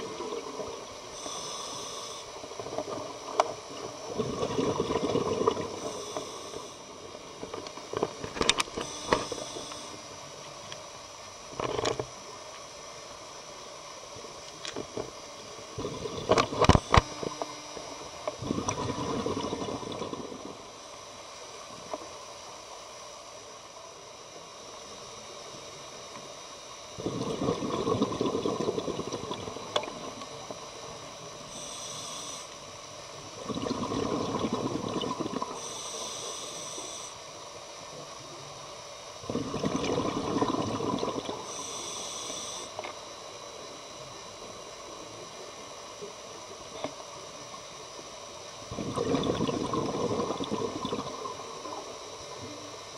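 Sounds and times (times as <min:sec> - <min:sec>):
underwater bubbling and rushing: 0:00.0 - 0:12.5, 0:14.2 - 0:22.4, 0:26.8 - 0:36.9, 0:39.2 - 0:41.9, 0:47.6 - 0:52.9
short higher hiss: 0:01.0 - 0:02.4, 0:05.7 - 0:07.1, 0:31.4 - 0:32.8, 0:35.5 - 0:37.4, 0:41.3 - 0:42.9.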